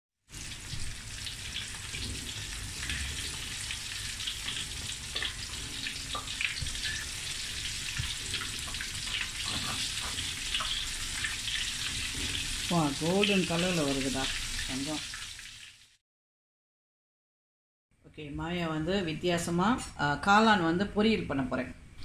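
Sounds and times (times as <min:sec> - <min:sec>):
food deep-frying in oil: 0:00.2 - 0:16.0.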